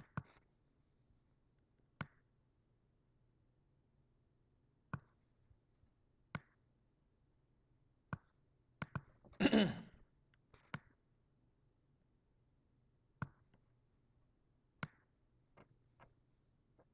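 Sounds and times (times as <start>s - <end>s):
computer mouse clicking: 2.0s - 2.3s, 6.3s - 6.6s, 8.1s - 9.2s, 10.3s - 11.0s.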